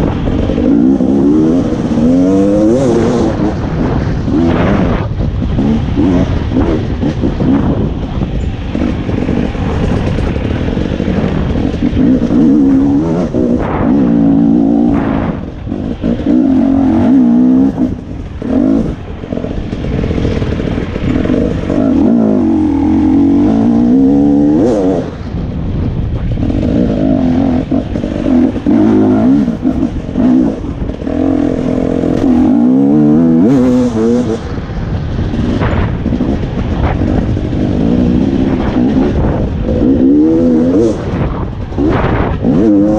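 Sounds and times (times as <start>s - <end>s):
dirt bike engine revving: 0.0s - 42.9s.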